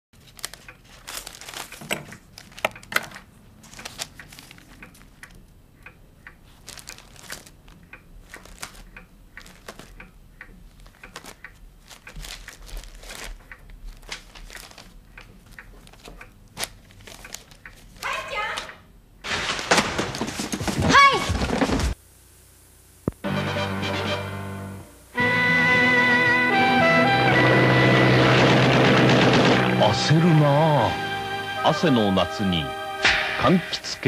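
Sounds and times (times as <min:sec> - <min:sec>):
paper rustling and crinkling: 0:00.2 - 0:05.3, 0:06.4 - 0:10.0, 0:10.7 - 0:18.1, 0:19.2 - 0:22.0.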